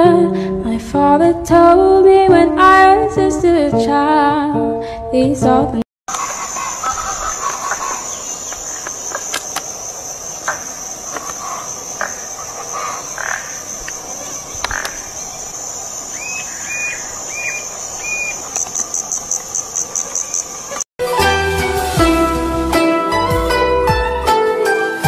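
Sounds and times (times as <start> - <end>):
insects trilling: 6.1 - 20.8.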